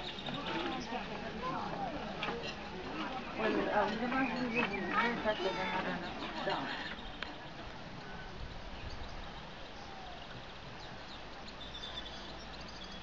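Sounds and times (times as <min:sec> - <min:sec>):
low background noise: 0:00.0 - 0:13.0
bird chirps: 0:08.8 - 0:13.0.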